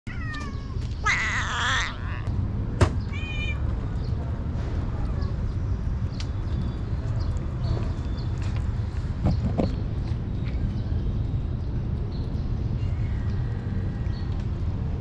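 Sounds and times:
kitten meowing: 0:00.1 - 0:02.3, 0:03.1 - 0:03.6
steady low rumble: 0:01.8 - 0:15.0
kitten eating ticks: 0:03.7 - 0:15.0.

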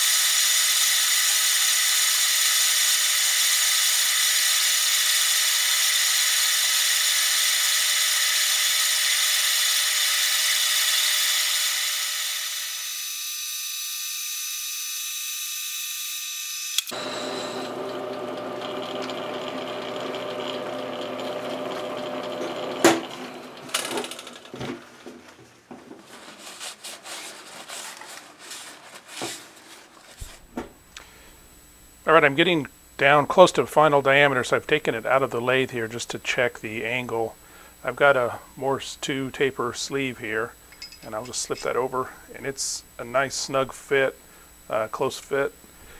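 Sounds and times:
lathe humming: 0:16.8 - 0:24.4.

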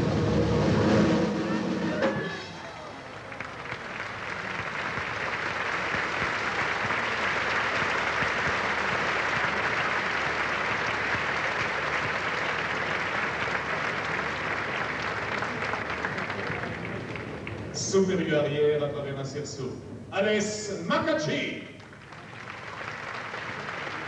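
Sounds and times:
audience applauding: 0:01.9 - 0:18.5, 0:21.8 - 0:24.0.

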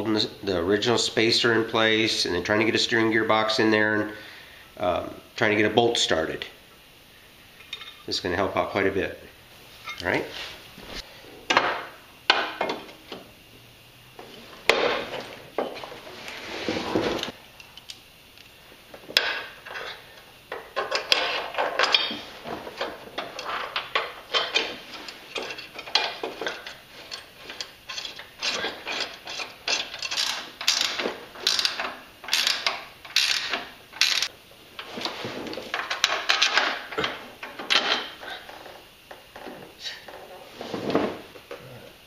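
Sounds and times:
hand ratchet clicking: 0:25.3 - 0:34.3.

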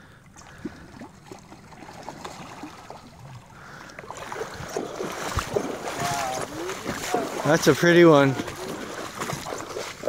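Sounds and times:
river water over gravel: 0:00.0 - 0:10.0
boots wading through water: 0:00.3 - 0:10.0.

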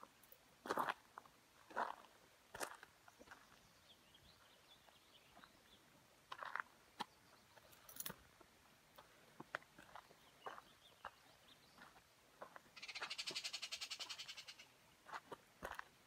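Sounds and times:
footsteps on rocky dirt trail: 0:00.6 - 0:13.1, 0:15.0 - 0:16.0.

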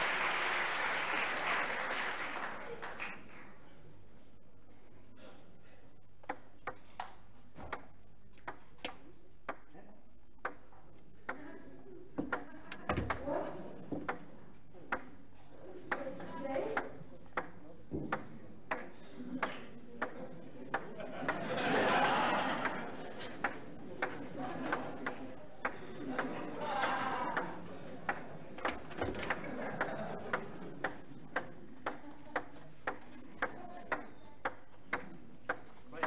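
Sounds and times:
table tennis ball clicking: 0:06.2 - 0:09.7, 0:10.4 - 0:11.4, 0:12.2 - 0:13.2, 0:13.9 - 0:15.2, 0:15.9 - 0:21.5, 0:22.6 - 0:36.0
crowd murmur: 0:11.3 - 0:36.0.

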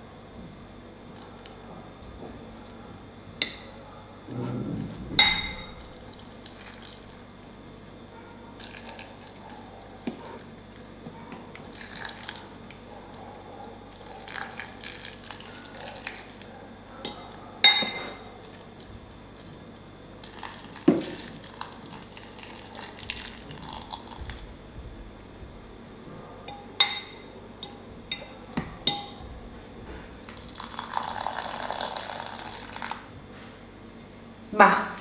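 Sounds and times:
fork clinking on glass bowl: 0:17.0 - 0:18.3, 0:26.5 - 0:29.2
water pouring into bowl: 0:30.3 - 0:33.0.

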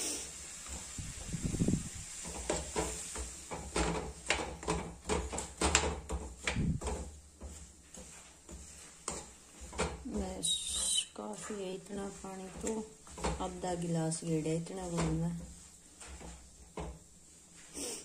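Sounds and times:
spoon scraping and clinking in pan: 0:02.2 - 0:13.4.

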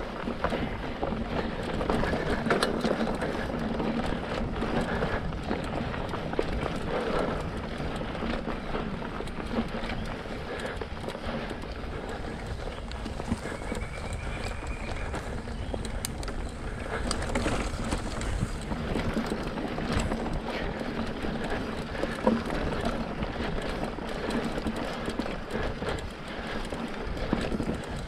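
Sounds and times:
mountain bike rumbling on dirt: 0:00.0 - 0:28.0
bike knocks and rattles: 0:11.2 - 0:26.1.

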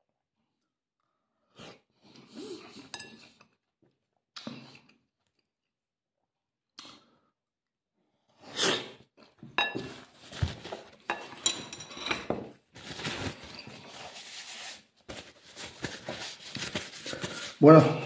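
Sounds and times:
paper napkin rustling: 0:10.1 - 0:10.9, 0:12.7 - 0:17.8.

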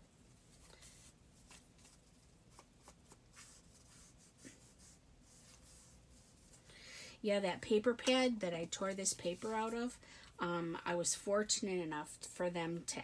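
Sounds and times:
paper rustling and scraping: 0:00.4 - 0:06.6.

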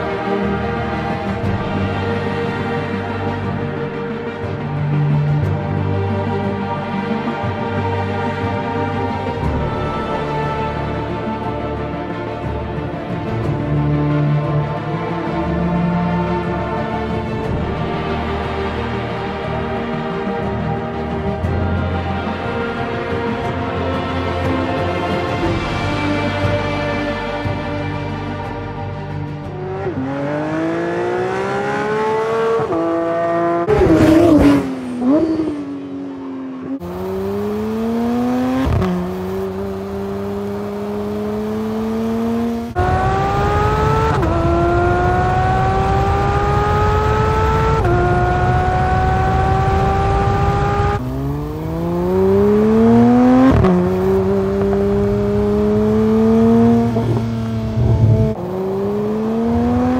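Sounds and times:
sports car engine accelerating: 0:29.4 - 0:59.9.

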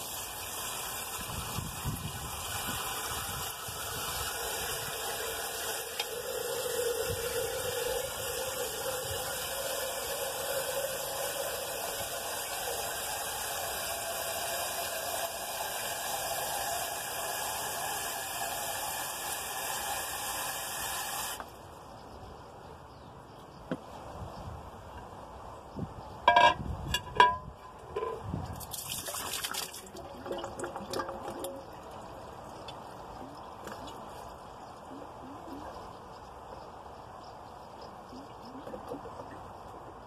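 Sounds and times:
water pouring into vessel: 0:00.0 - 0:21.4, 0:28.0 - 0:34.2.

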